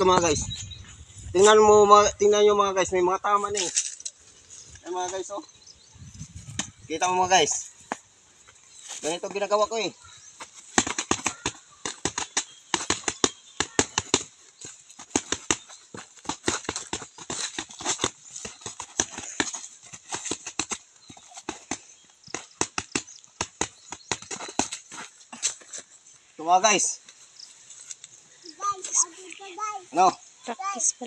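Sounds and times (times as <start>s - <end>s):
boxing gloves punching tree trunk: 10.4s - 25.0s.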